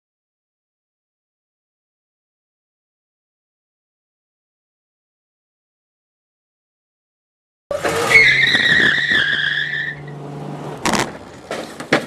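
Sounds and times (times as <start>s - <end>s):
loud high squeal: 7.7s - 10.2s.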